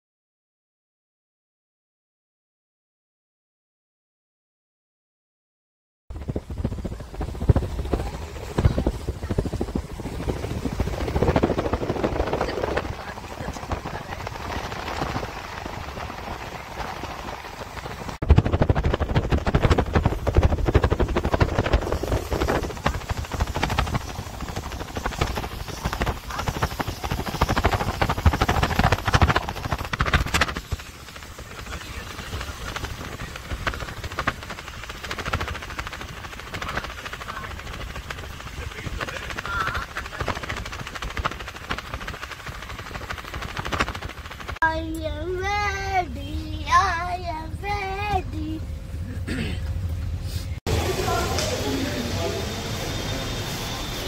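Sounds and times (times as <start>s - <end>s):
wind buffeting on microphone: 6.1s - 44.7s
vehicle road and wind noise: 6.1s - 45.2s.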